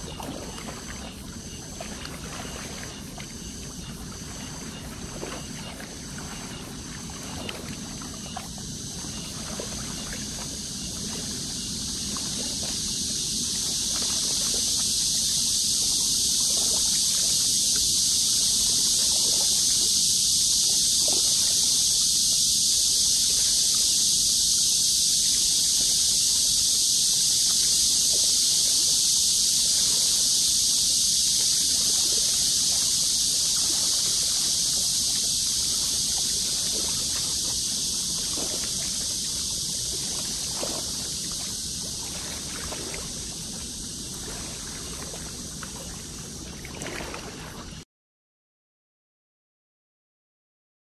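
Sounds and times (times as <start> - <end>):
waves lapping against rocks: 0.0 - 13.0, 31.8 - 47.8
steady high hiss: 0.0 - 44.2.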